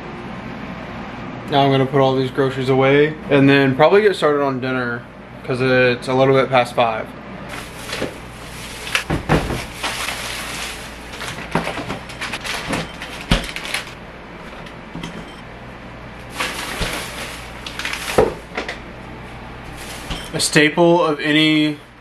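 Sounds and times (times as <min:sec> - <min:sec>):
items knocking when set down: 0:07.5 - 0:14.0, 0:14.6 - 0:15.4, 0:16.3 - 0:18.8
plastic bags rustling: 0:07.5 - 0:15.4, 0:16.1 - 0:20.7
refrigerator door opening: 0:07.5 - 0:15.4, 0:16.2 - 0:18.8, 0:19.7 - 0:20.6.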